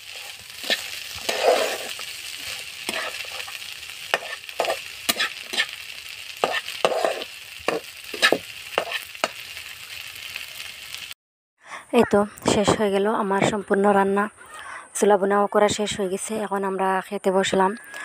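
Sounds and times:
spatula scraping frying pan: 0:00.0 - 0:09.5
food sizzling: 0:00.0 - 0:11.2.

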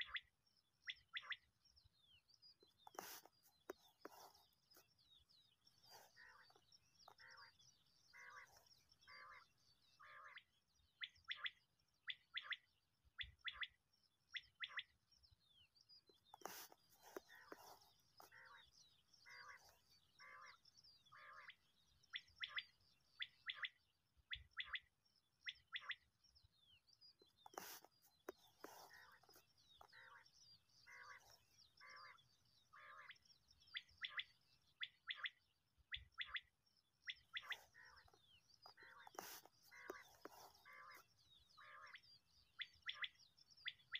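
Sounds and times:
quail calling: 0:16.3 - 0:20.6, 0:27.4 - 0:27.9, 0:37.1 - 0:41.0.

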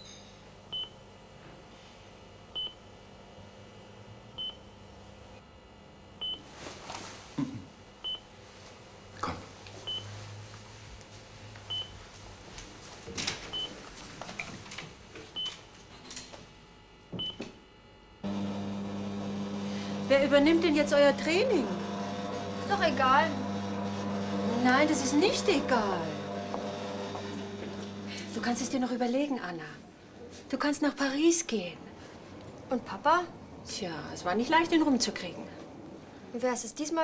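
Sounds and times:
patient monitor beeping: 0:09.9 - 0:10.1, 0:11.7 - 0:12.0, 0:13.5 - 0:13.7.

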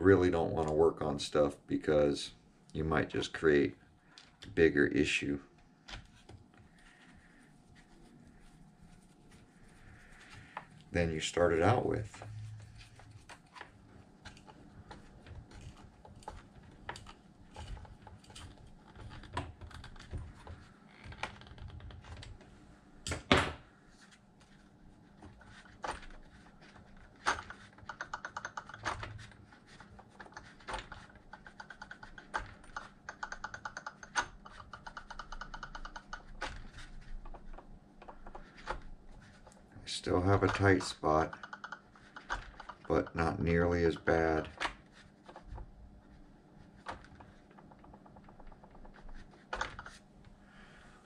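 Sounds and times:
hex key clicks and taps: 0:30.2 - 0:36.5.

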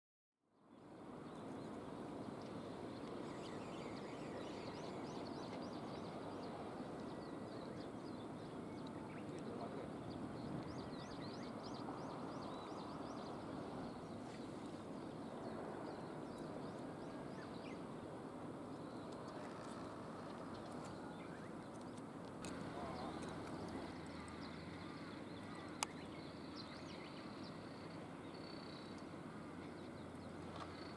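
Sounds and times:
steady background noise: 0:00.8 - 0:30.9.

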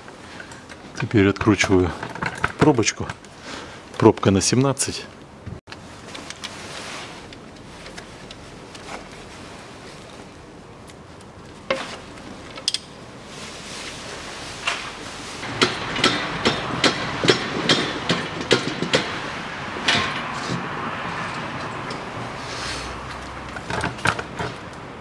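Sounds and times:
sharp metal knocks and clatter: 0:01.4 - 0:03.2, 0:15.4 - 0:20.7, 0:23.5 - 0:24.7
rushing noise: 0:15.2 - 0:23.5.

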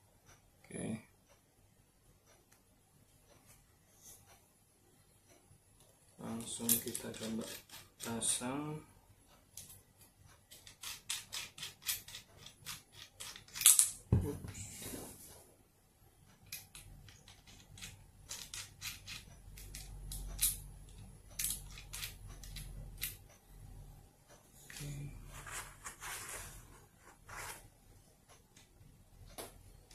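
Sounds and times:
small metallic clicks: 0:16.3 - 0:23.4.

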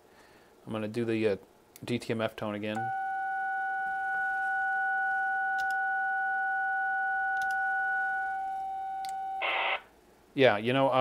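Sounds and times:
two steady pure tones: 0:02.8 - 0:09.6.

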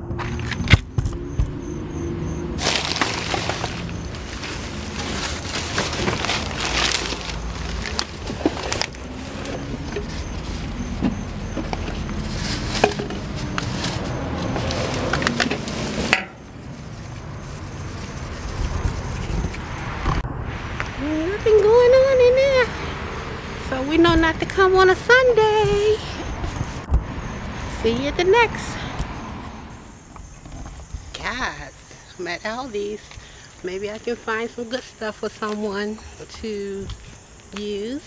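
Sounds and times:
plastic garbage bags rustling: 0:02.6 - 0:18.2.

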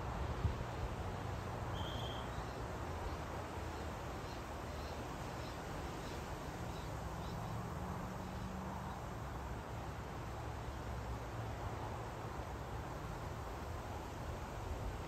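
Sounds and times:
outdoor garden background noise: 0:00.0 - 0:15.0
short high whistle: 0:01.7 - 0:02.3
faint short high chirps: 0:01.7 - 0:02.4.

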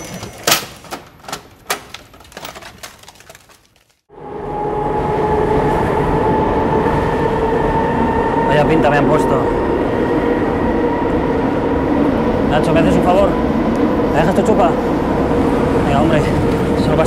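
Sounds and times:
sharp clicks and knocks: 0:00.0 - 0:03.8.

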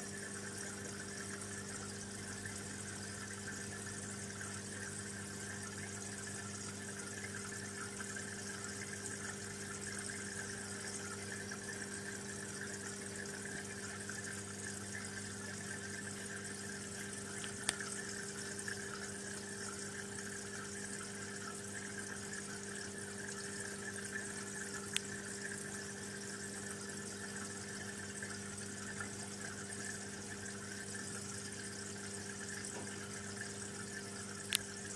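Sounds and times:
aquarium pump humming: 0:00.0 - 0:34.9
bubbling water from air stone: 0:00.0 - 0:34.9.

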